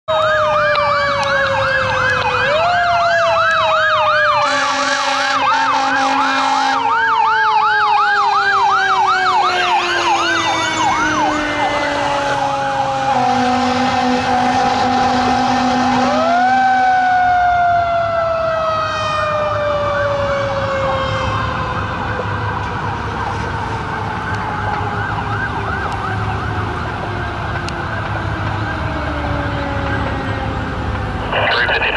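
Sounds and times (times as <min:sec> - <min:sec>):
fire engine sirens: 0:00.1 - 0:31.9
horn blasts: 0:04.4 - 0:06.8, 0:13.1 - 0:16.6.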